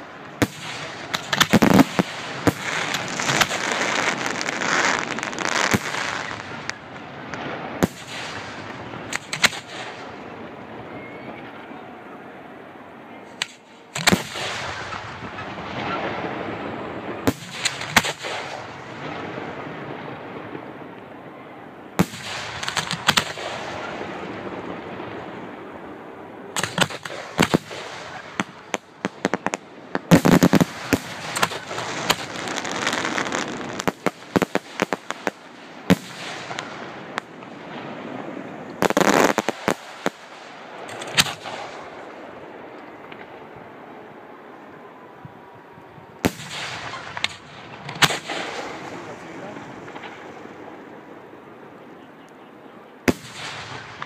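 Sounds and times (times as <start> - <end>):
fireworks bursting: 0.0 - 11.7, 13.3 - 51.8, 53.0 - 54.0.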